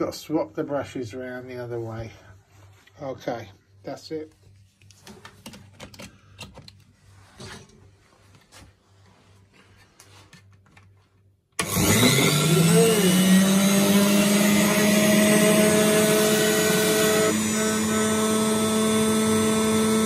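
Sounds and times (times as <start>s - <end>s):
electric motor spinning up and whining: 11.6s - 20.0s.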